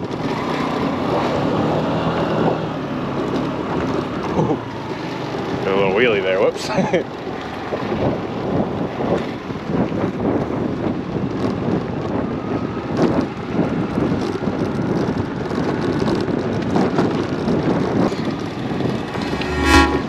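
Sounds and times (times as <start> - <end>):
wind buffeting microphone: 7.6 - 19.3.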